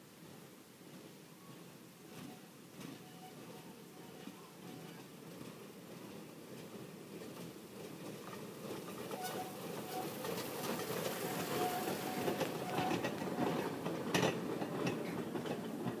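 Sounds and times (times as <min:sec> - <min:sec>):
train wheels rumbling on rails: 0:00.1 - 0:16.0
train squeaks: 0:02.1 - 0:05.2, 0:08.2 - 0:16.0.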